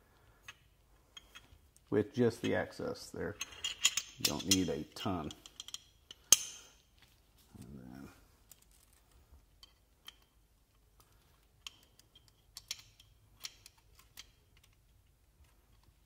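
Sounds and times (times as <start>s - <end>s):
pistol parts clicking: 11.6s - 15.0s.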